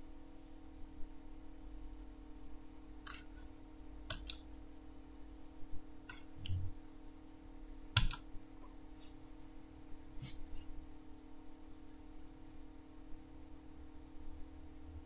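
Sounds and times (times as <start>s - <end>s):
low electrical hum: 0.0s - 15.0s
computer mouse button clicks: 8.0s - 8.2s.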